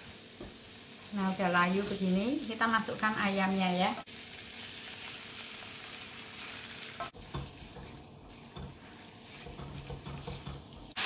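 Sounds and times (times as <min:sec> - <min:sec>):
chicken sizzling in hot oil: 0:00.0 - 0:11.0
spatula knocking on wok: 0:07.0 - 0:11.0.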